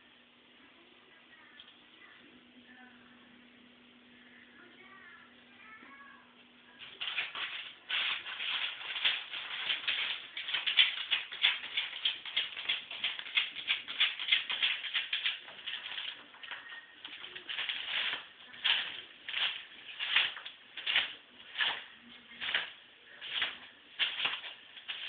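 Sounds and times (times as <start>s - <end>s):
dog scratching newspaper: 6.8s - 25.0s.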